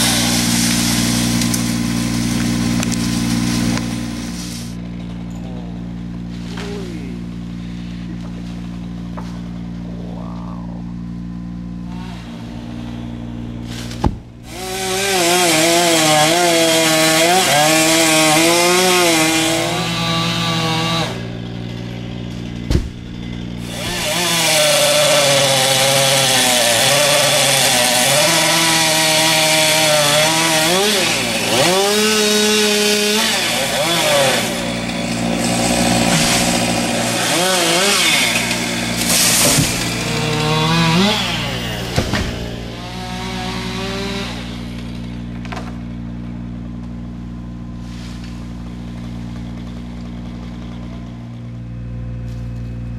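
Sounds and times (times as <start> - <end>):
chainsaw cutting wood: 0.0 - 9.8, 11.5 - 52.9
low engine hum: 0.2 - 14.6, 38.8 - 52.9.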